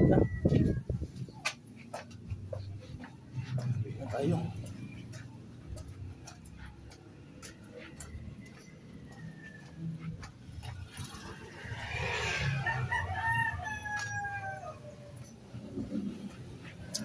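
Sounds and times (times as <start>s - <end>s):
rooster crowing: 0.0s - 0.9s, 8.0s - 10.1s, 11.5s - 15.3s.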